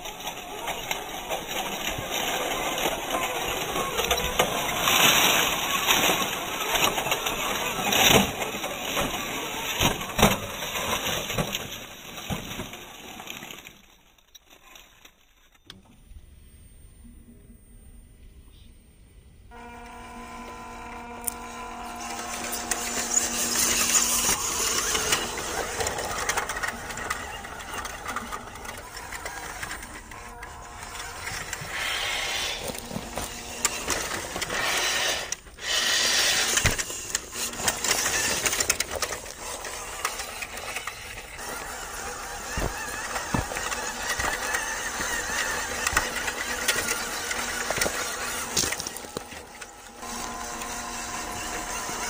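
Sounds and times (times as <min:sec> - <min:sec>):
tyres crunching over dry leaves: 0:00.0 - 0:15.5, 0:41.2 - 0:52.0
small electric motor whining: 0:19.5 - 0:52.0.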